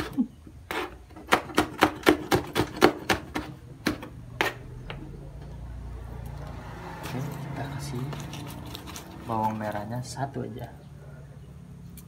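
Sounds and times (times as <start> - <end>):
knife chopping on plastic board: 1.2 - 4.6.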